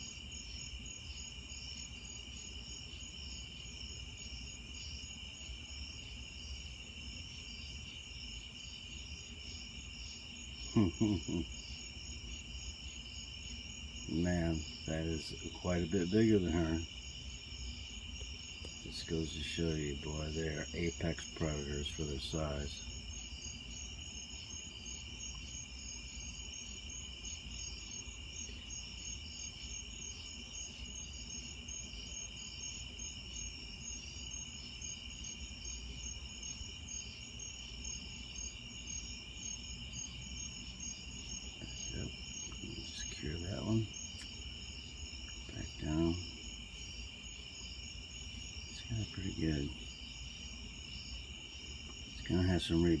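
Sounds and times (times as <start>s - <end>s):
insects trilling: 0.0s - 53.0s
pulsing high insect chirp: 0.0s - 53.0s
person murmuring: 10.7s - 11.5s.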